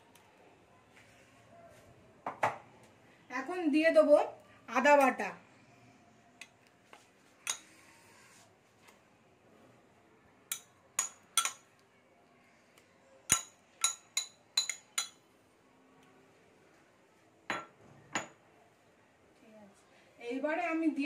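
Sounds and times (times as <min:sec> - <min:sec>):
metal spoon clinking on bowls: 0:07.4 - 0:07.8, 0:10.5 - 0:11.8, 0:13.3 - 0:15.2.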